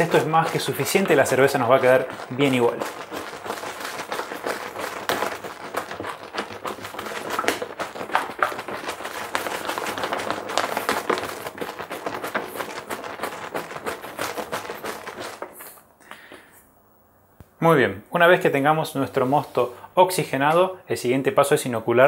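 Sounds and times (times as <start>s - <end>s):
liquid sloshing in plastic jug: 0.0s - 16.4s.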